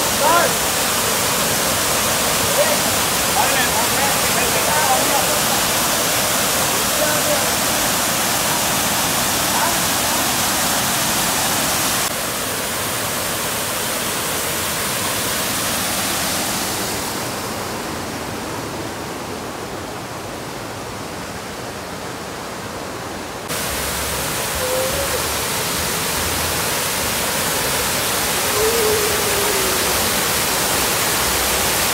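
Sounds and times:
waterfall rushing: 0.0s - 31.9s
faint whistle-like calls: 24.5s - 25.4s.

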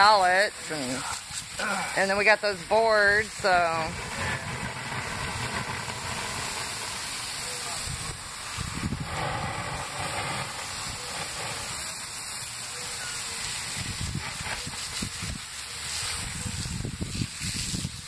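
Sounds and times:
hose spraying water: 0.0s - 18.0s
water hissing on hot embers: 0.0s - 18.0s
wind buffeting microphone: 2.7s - 12.4s, 13.5s - 15.5s, 16.1s - 18.0s.

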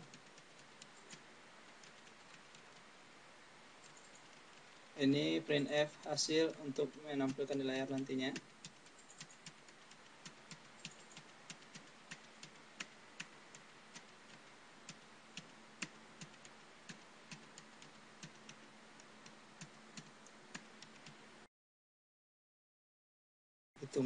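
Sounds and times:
low hiss: 0.0s - 21.5s, 23.8s - 24.0s
computer keyboard keystrokes: 6.9s - 18.6s.

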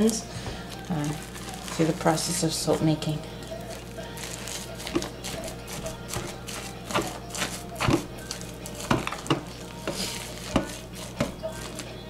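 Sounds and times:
spatula scraping thick paste: 4.7s - 8.1s, 8.8s - 11.8s.

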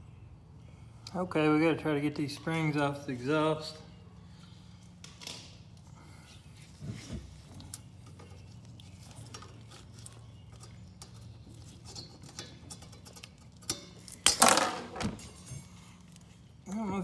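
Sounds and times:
metallic clicks and scrapes: 7.7s - 14.4s.

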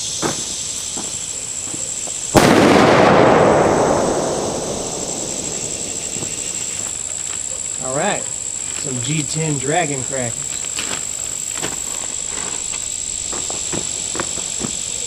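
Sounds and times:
rapid firecracker crackle: 0.0s - 15.0s
firecracker bang: 2.3s - 6.9s.

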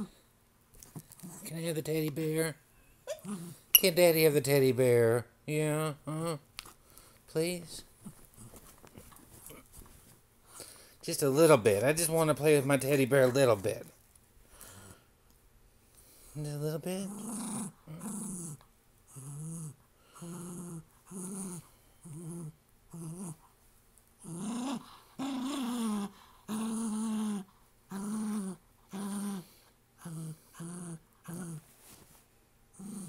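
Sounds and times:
small dog growling: 3.1s - 3.6s, 17.0s - 23.4s, 24.2s - 31.7s, 32.7s - 33.0s.

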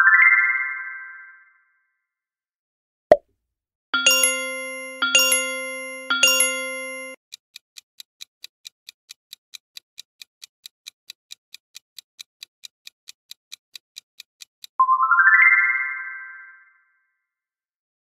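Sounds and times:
bright electronic chimes: 4.0s - 7.2s
countdown timer ticking: 4.0s - 7.2s.

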